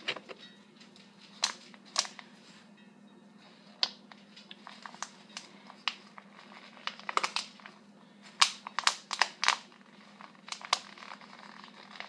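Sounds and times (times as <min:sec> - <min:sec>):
low steady hum: 0:00.0 - 0:12.0
plastic bottle crinkling: 0:01.2 - 0:02.3, 0:03.8 - 0:12.0.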